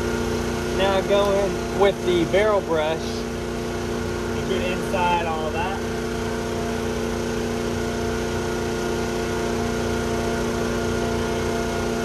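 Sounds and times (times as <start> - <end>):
motor running steadily: 0.0 - 12.0.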